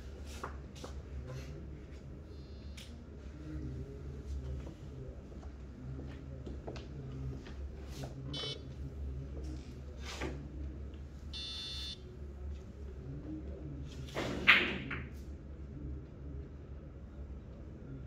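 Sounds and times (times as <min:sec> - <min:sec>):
low room hum: 0:00.0 - 0:14.2, 0:14.9 - 0:18.0
electronic beeps: 0:08.4 - 0:08.6, 0:11.4 - 0:12.0.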